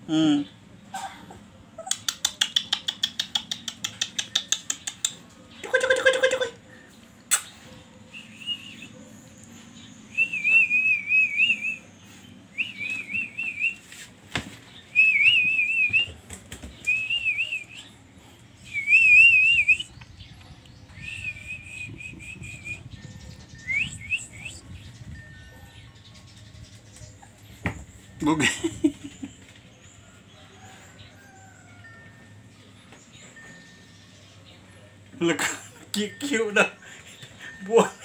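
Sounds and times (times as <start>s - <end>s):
person whistling trills: 14.9s - 16.1s, 16.9s - 17.9s, 18.6s - 20.0s, 20.9s - 25.4s.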